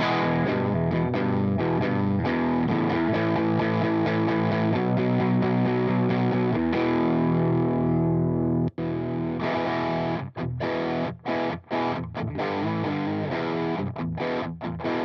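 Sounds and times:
distorted electric guitar chords: 0.0 - 15.0.

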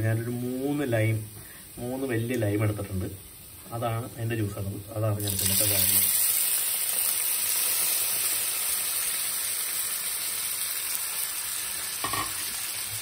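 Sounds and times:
juice sizzling in hot oil: 0.0 - 13.0.

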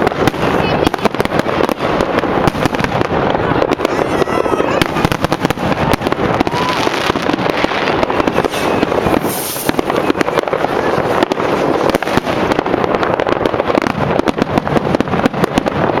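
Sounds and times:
fireworks cracking and crackling: 0.0 - 16.0
short firework hiss: 8.2 - 10.0.

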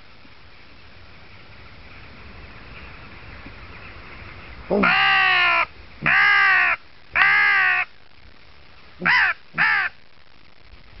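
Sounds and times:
crow call caws: 4.7 - 8.0, 9.0 - 10.0.

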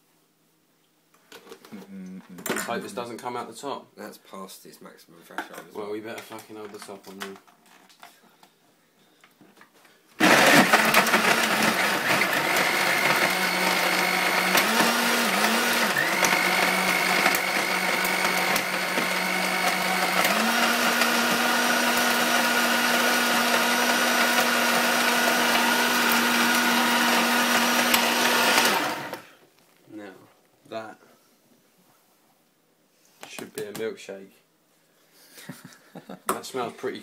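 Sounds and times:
blender motor running: 10.2 - 29.2.

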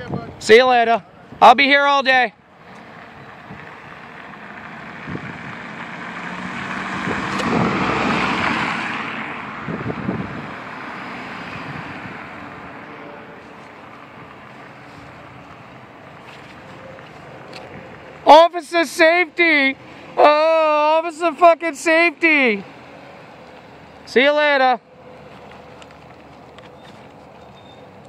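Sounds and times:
car driving past: 2.6 - 18.3.

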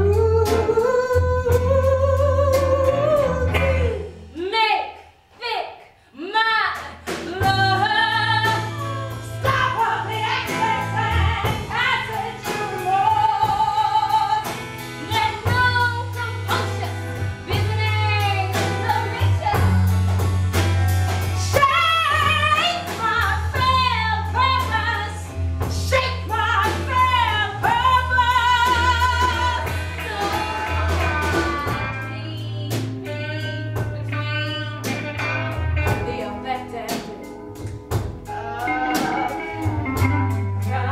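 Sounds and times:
held bass notes: 0.0 - 4.6, 7.3 - 40.9
woman singing with vibrato: 0.0 - 19.9, 21.4 - 34.8, 35.8 - 37.1, 38.3 - 40.9.

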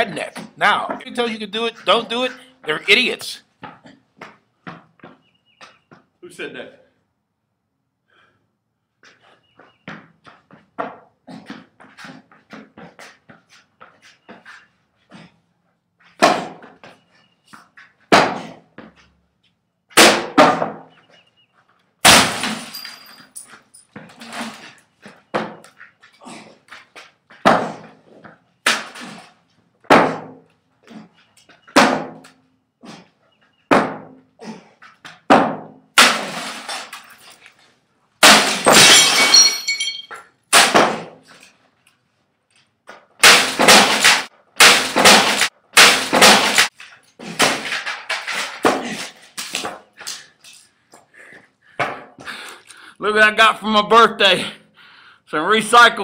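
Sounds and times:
box clattering as it breaks: 47.3 - 49.6.

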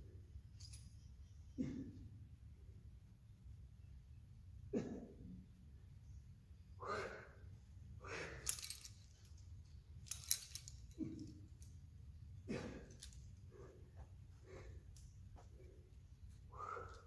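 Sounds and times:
metallic clinks of climbing gear: 0.1 - 2.2, 5.9 - 17.0.

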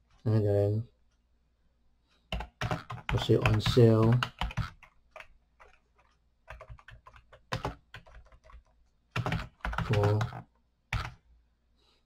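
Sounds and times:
typing on computer keyboard: 2.3 - 11.2.

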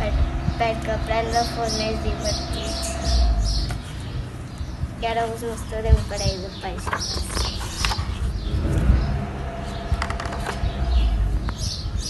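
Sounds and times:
low outdoor rumble: 0.0 - 12.0
book pages turning: 6.8 - 8.2.

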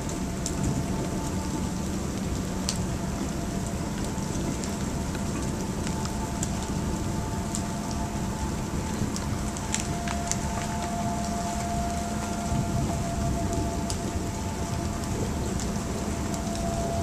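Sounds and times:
faint steady hum: 0.0 - 17.0
steady rain falling: 0.0 - 17.0.

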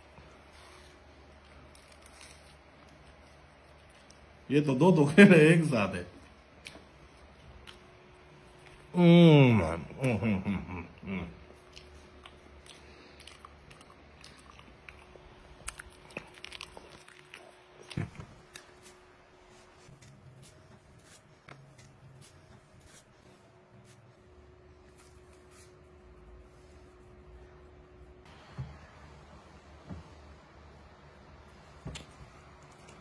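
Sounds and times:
faint steady hum: 0.0 - 33.0
man chewing banana: 6.5 - 9.0, 11.0 - 24.0.

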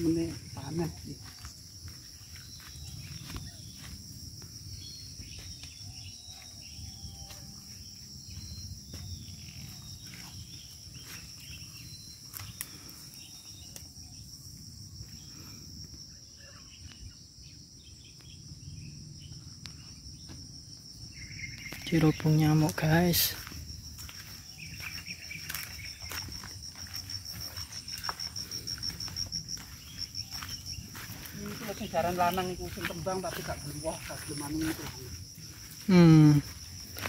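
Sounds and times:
footsteps in dry undergrowth: 0.0 - 13.4, 21.4 - 37.0
insects droning: 0.0 - 37.0.

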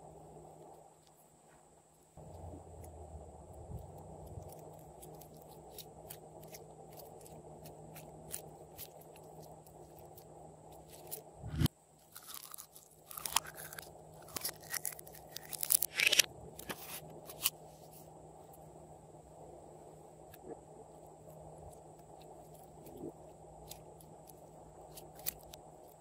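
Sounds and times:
slime crackling and popping: 10.8 - 16.7.

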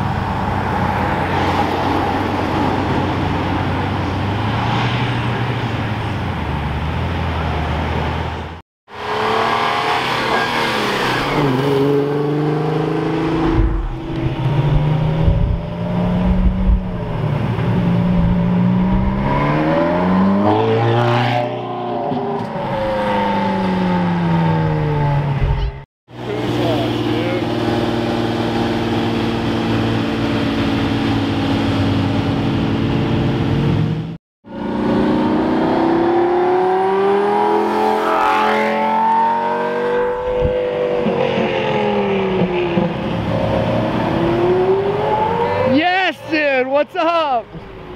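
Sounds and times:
sports car engines accelerating: 9.0 - 45.8
car engine running at low revs: 13.4 - 19.2.

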